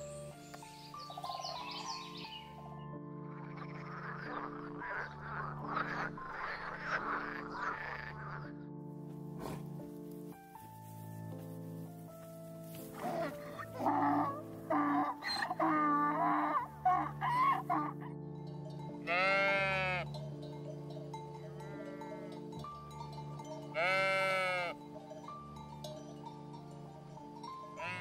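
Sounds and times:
background music: 0.0s - 28.0s
sheep bleating: 3.3s - 8.6s, 19.0s - 20.1s, 23.7s - 24.8s, 27.8s - 28.0s.

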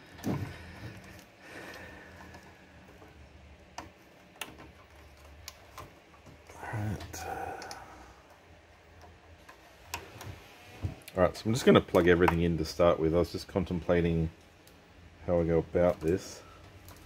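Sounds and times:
low steady hum: 0.0s - 17.0s
plastic cable connectors clicking: 7.6s - 7.8s.

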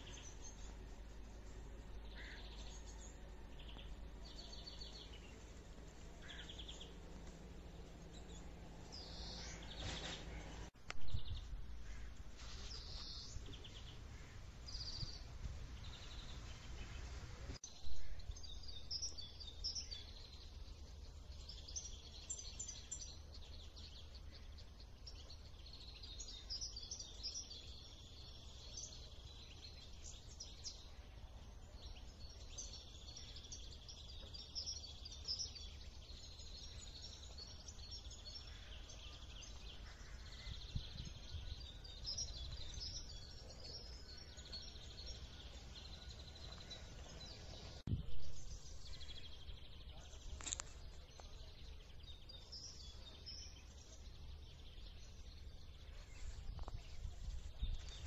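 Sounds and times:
small birds chirping: 0.0s - 58.0s
wind rumble on microphone: 40.0s - 43.1s, 47.4s - 49.6s, 56.0s - 58.0s.

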